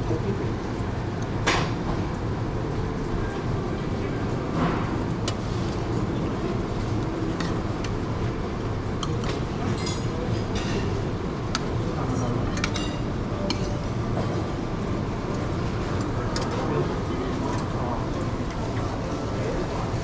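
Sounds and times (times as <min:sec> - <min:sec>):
murmur of voices: 0:02.9 - 0:20.0
metal utensils clinking on plates: 0:09.0 - 0:10.9, 0:12.0 - 0:13.9.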